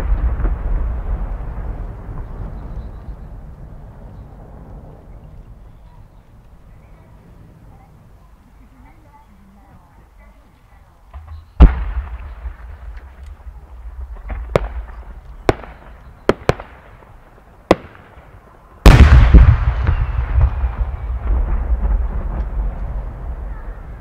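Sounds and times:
firework sharp cracks: 0.0s - 2.7s, 11.1s - 24.0s
firework shell booming: 0.0s - 3.2s, 11.1s - 24.0s.

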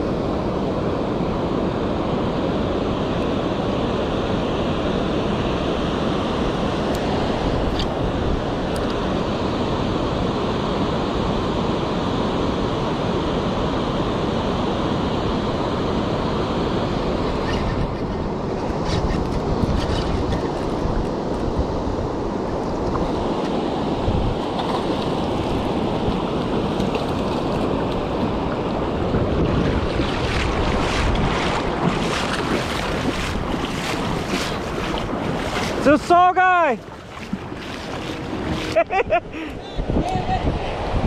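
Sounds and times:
river water rushing: 0.0s - 17.6s, 20.4s - 39.6s
wind buffeting microphone: 16.4s - 41.0s.

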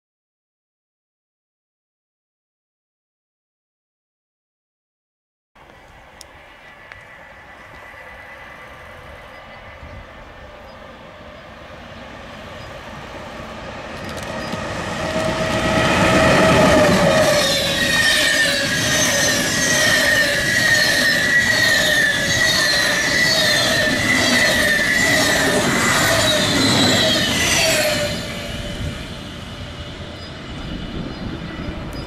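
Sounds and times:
train passing: 5.6s - 32.0s
train wheels squealing: 6.4s - 11.7s, 12.3s - 32.0s.

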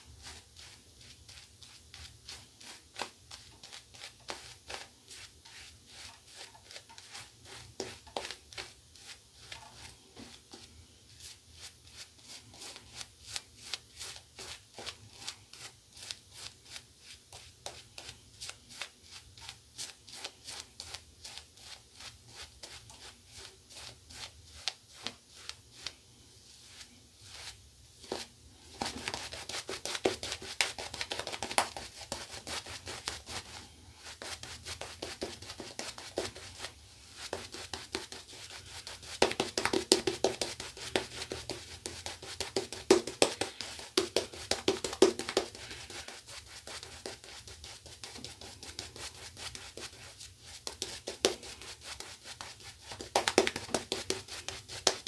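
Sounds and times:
shaving brush swishing on stubble: 0.0s - 55.0s.

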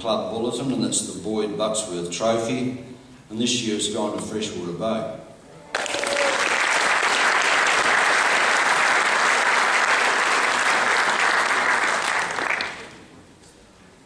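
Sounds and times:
audience applauding: 5.7s - 13.0s.

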